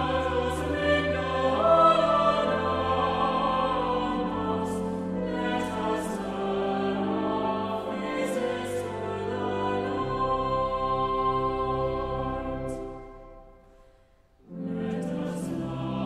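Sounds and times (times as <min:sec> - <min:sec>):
choir singing sacred music: 0:00.0 - 0:16.0.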